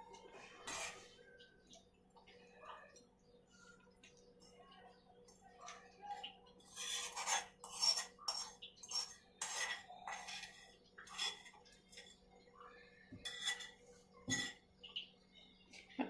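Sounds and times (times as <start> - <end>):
spoon scraping a bowl: 0.1 - 1.4, 6.6 - 12.2, 13.2 - 14.6.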